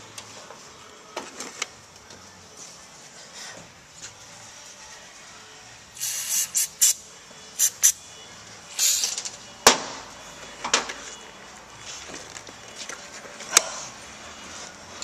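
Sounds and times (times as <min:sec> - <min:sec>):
aerosol spray can hissing: 0:06.0 - 0:07.0, 0:07.6 - 0:08.0, 0:08.8 - 0:09.1.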